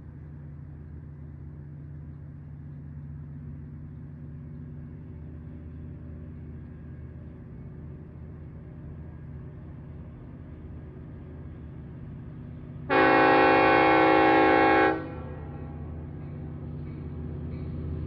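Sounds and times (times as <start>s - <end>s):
locomotive air horn chord: 12.9s - 15.5s.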